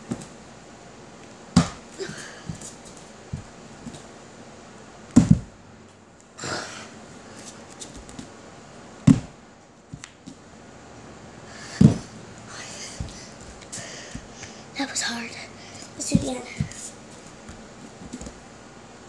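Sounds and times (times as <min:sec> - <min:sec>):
thumps on wooden floor: 0:05.2 - 0:05.5, 0:09.1 - 0:09.3.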